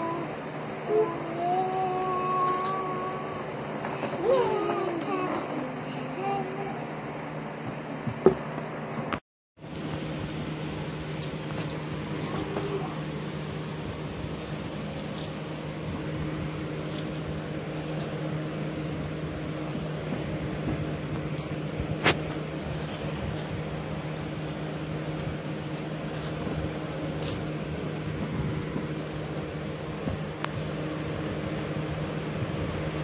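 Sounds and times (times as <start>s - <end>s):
steady mechanical hum: 0.0s - 33.0s
metal handcuffs clinking: 11.2s - 12.7s.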